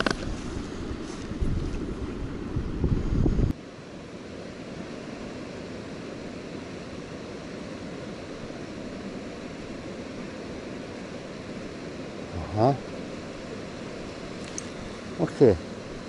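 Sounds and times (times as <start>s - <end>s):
river current rushing: 3.6s - 16.0s.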